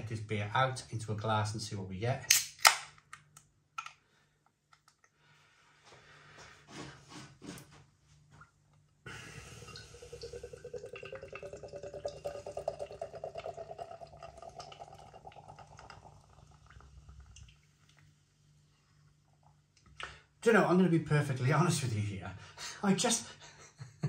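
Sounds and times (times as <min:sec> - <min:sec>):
beer glugging into glass: 0:09.5 - 0:16.7.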